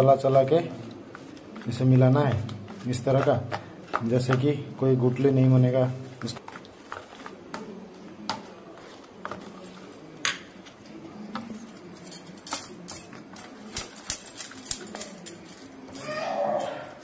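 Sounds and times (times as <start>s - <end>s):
spoon stirring batter in metal bowl: 0.0s - 16.0s.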